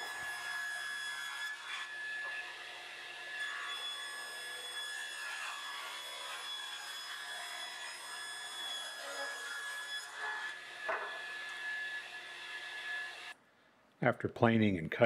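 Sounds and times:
table saw ripping a board: 0.0 - 11.9.

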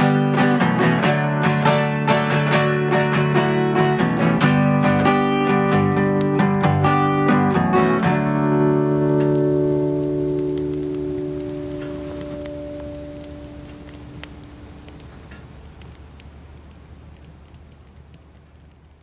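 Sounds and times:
acoustic guitar strumming: 0.0 - 13.9.

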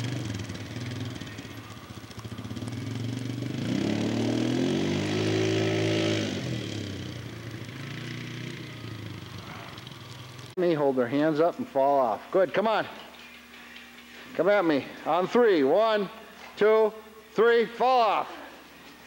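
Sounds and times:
atv engine revving: 0.0 - 10.6.

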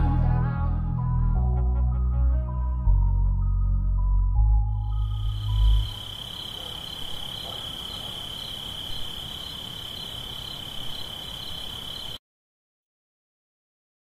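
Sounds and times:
high-pitched insect trill: 4.8 - 12.2.

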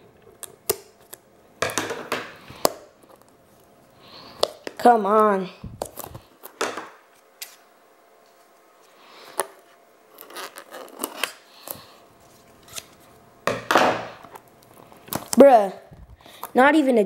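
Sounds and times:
scraping plastic shrink wrap: 10.2 - 13.1.

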